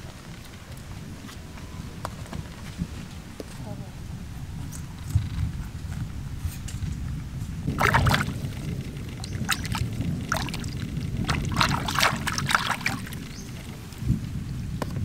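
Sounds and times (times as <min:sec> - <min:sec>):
low background rumble: 0:07.2 - 0:15.0
water splashing and sloshing: 0:07.7 - 0:14.1.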